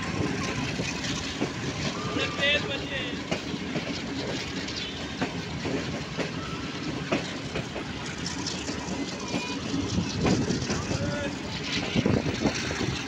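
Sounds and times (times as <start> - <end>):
train rumble: 0.0 - 13.0
wheels clicking over rail joints: 0.0 - 13.0.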